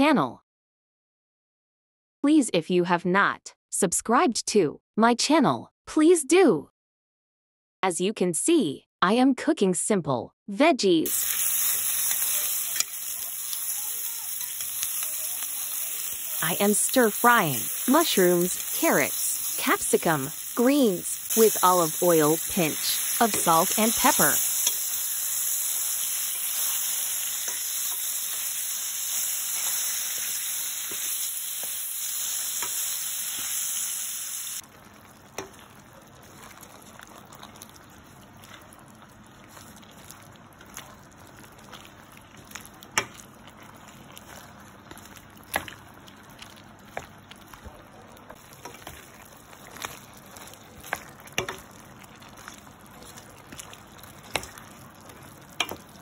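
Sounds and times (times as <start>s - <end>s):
vegetables sizzling in a pan: 11.1s - 47.7s, 48.3s - 56.0s.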